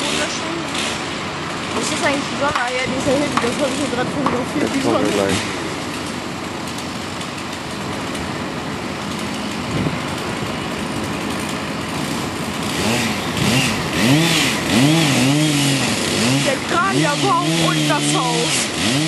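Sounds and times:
chainsaw cutting and revving: 0.0s - 8.2s, 9.0s - 19.0s.

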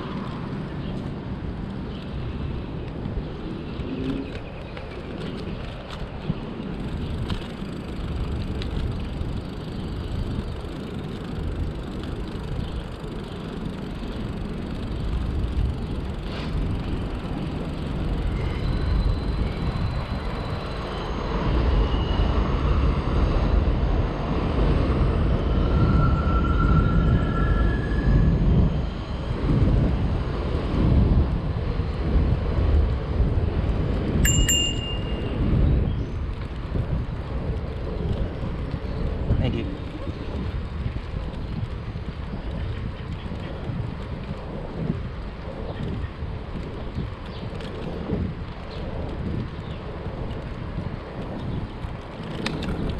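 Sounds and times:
wind buffeting microphone: 0.0s - 52.9s.

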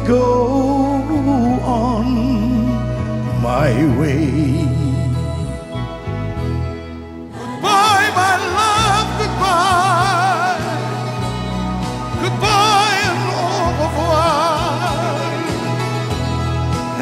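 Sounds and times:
lead melody with wide vibrato: 0.0s - 17.0s
live band playing pop ballad: 0.0s - 17.0s.

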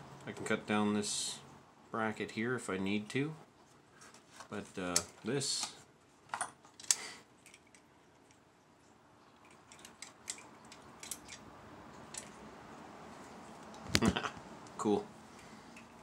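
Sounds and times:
metal toy car body clicking: 9.7s - 11.4s.

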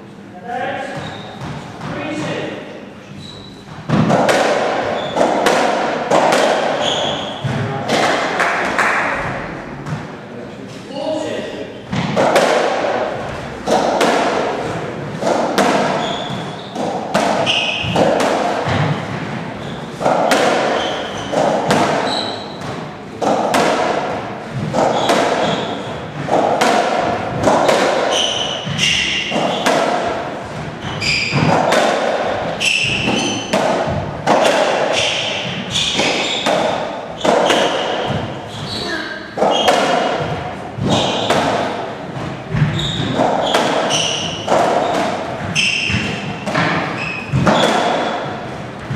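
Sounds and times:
shoes squeaking on wooden floor: 0.8s - 2.4s, 3.0s - 4.0s, 4.8s - 5.3s, 6.7s - 7.8s, 15.8s - 22.8s, 24.5s - 26.3s, 27.4s - 29.6s, 30.4s - 41.3s, 42.2s - 48.9s
rubber ball hitting rackets and walls: 3.7s - 10.2s, 11.9s - 48.9s.

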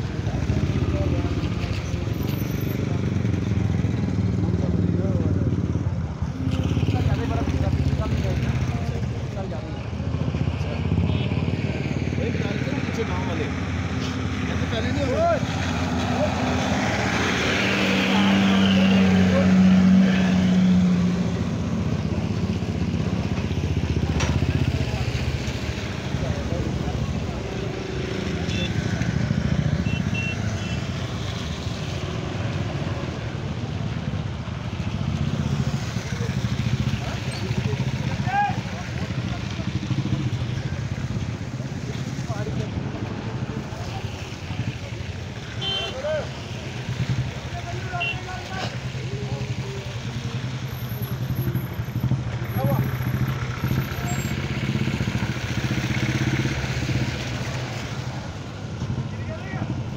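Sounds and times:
road noise: 0.0s - 59.9s
motorcycle engine running: 49.4s - 57.1s.

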